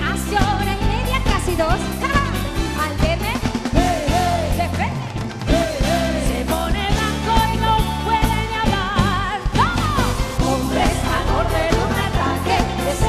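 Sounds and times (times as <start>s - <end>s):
live pop band playing: 0.0s - 13.0s
woman singing into microphone: 3.8s - 13.0s.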